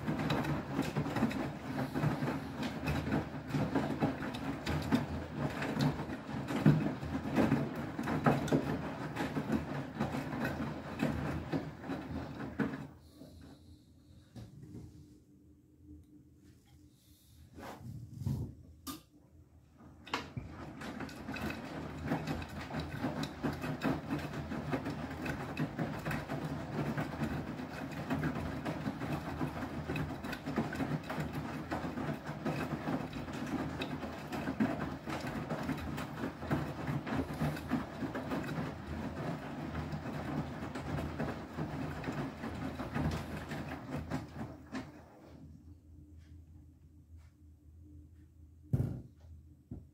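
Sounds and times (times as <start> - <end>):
washing machine drum tumbling: 0.0 - 12.9, 19.8 - 45.1, 48.7 - 49.9
thump: 48.7 - 49.8.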